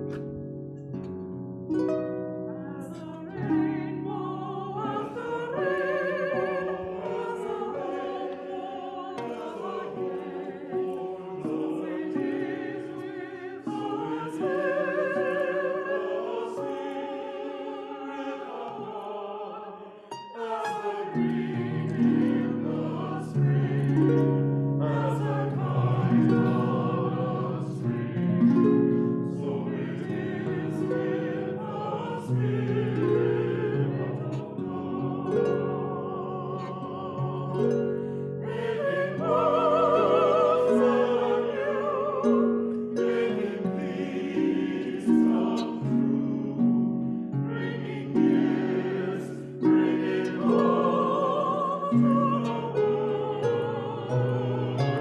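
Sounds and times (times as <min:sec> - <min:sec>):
harp accompaniment: 0:00.0 - 0:19.0, 0:20.1 - 0:55.0
mixed choir singing: 0:02.6 - 0:55.0.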